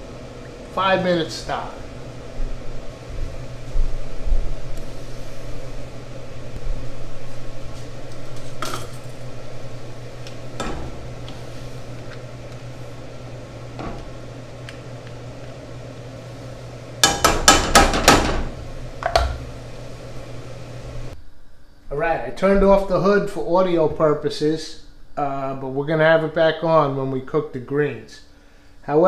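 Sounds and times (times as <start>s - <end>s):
range hood fan humming: 0.0s - 29.0s
sharp metal knocks: 17.0s - 18.4s.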